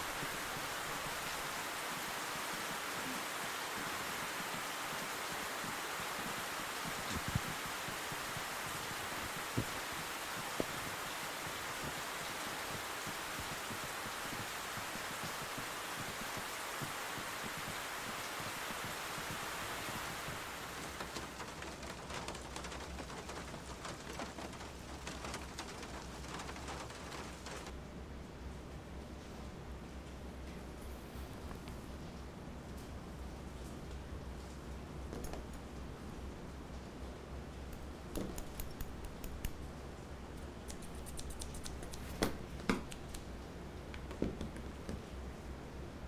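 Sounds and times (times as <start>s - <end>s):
raindrops ticking close by: 0.0s - 27.8s, 31.4s - 45.8s
low room hum: 0.0s - 46.0s
steady rain falling: 0.0s - 46.0s
scissors snipping hair: 38.2s - 39.6s, 40.6s - 42.2s.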